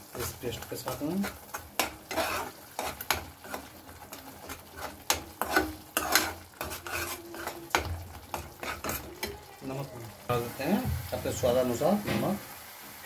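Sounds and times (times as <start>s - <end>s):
paste sizzling in oil: 0.0s - 13.0s
spoon scraping metal pan: 0.1s - 9.3s.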